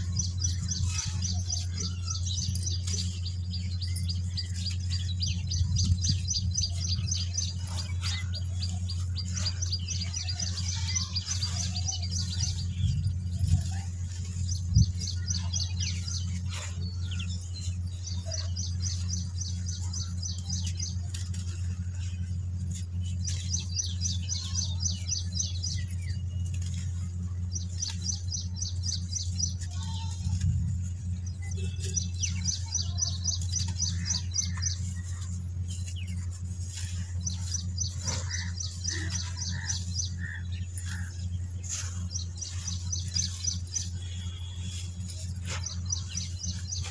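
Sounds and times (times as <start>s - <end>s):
bird chirping trills: 0.0s - 46.9s
dry dirt crumbling: 0.0s - 46.9s
steady low hum: 0.0s - 46.9s.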